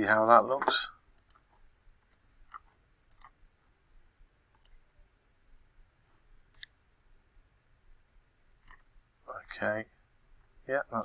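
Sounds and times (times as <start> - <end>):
computer mouse clicks: 1.1 - 3.4, 4.5 - 4.8, 6.0 - 6.8, 8.6 - 8.9.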